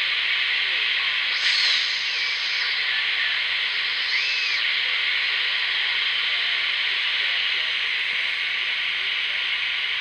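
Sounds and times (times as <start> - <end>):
radio band noise hiss: 0.0 - 10.0
wavering radio tones: 1.0 - 7.7.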